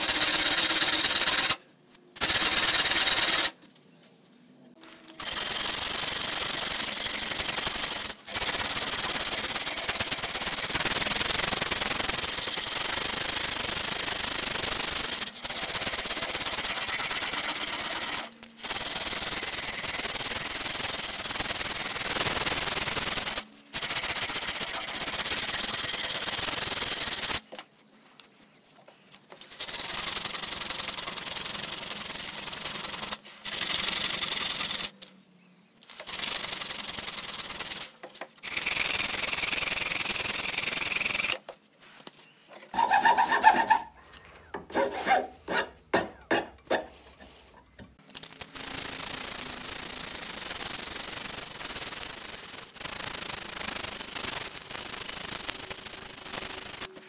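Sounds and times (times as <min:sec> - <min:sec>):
sanding wood scratchy rasp: 0:42.8 - 0:43.9, 0:44.7 - 0:45.8.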